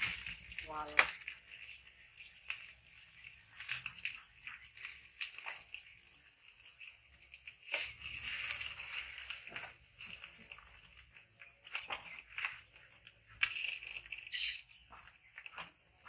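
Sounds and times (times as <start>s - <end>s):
frying sizzle: 0.0s - 15.6s.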